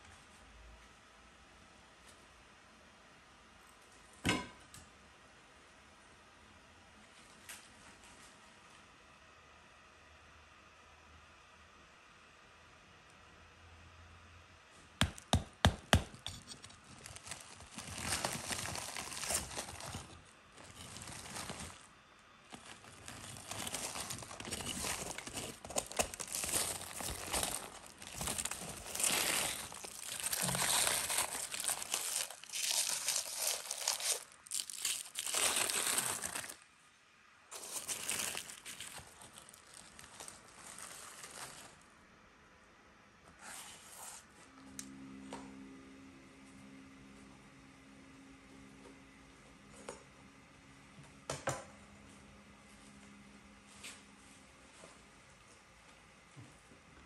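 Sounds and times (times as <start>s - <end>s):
foil crinkling: 16.0s - 21.9s, 22.5s - 36.6s, 37.5s - 41.8s
mud crust cracking and crumbling: 16.2s - 21.9s, 22.5s - 36.6s, 37.5s - 41.8s.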